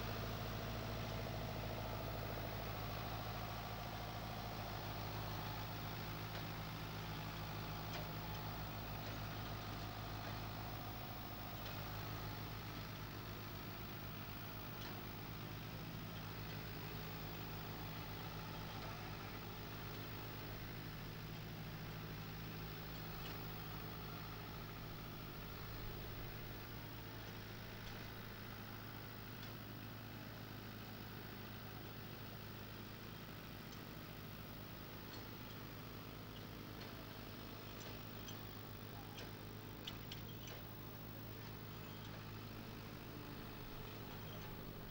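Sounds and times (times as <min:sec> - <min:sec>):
tractor diesel engine running: 0:00.0 - 0:44.9.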